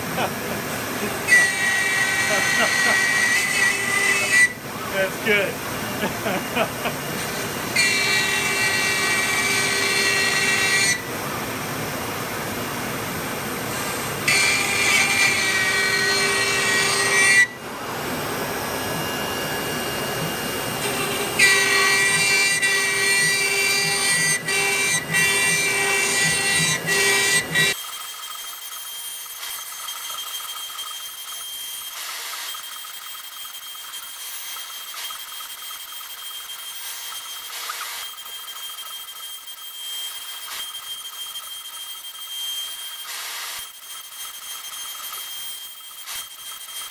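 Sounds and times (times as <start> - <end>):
thin hum with high tone: 27.3 - 46.9.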